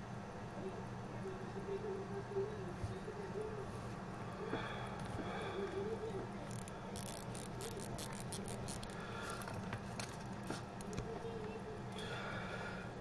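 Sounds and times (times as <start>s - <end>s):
steady low hum: 0.0s - 13.0s
watch crown clicking: 6.5s - 11.0s.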